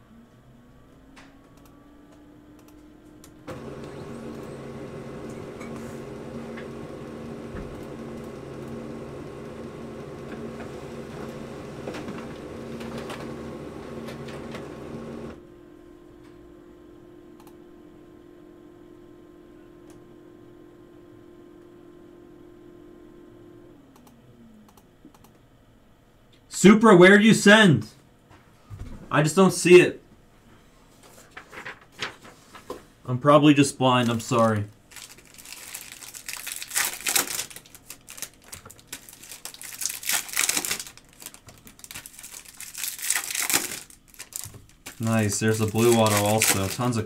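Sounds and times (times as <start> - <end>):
electric motor hum: 1.6 - 24.4, 33.8 - 47.0.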